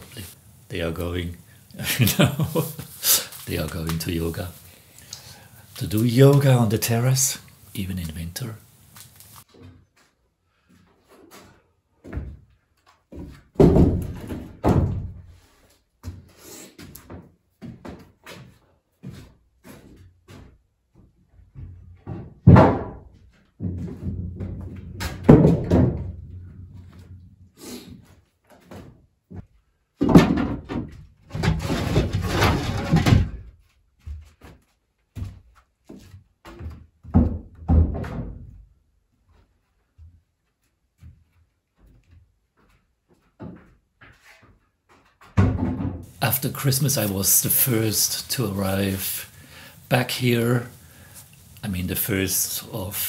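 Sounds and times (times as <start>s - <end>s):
knocks and thuds: 13.2s - 15.3s, 21.6s - 26.9s, 30.0s - 33.5s, 36.6s - 38.6s, 45.3s - 46.1s
hard objects clattering and scraping: 31.2s - 33.5s.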